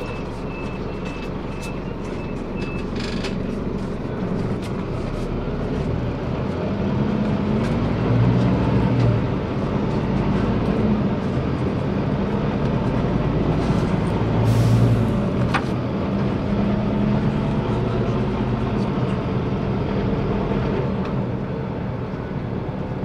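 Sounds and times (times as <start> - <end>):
bus diesel engine running: 0.0 - 23.0.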